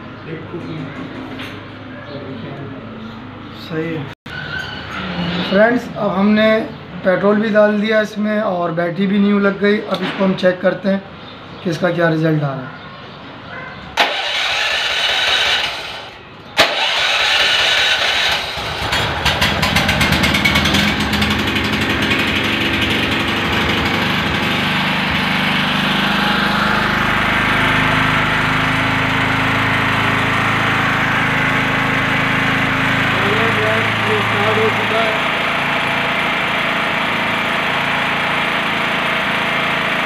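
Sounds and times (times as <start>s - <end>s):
generator engine running: 14.0s - 40.0s
generator starter cranking: 14.0s - 40.0s.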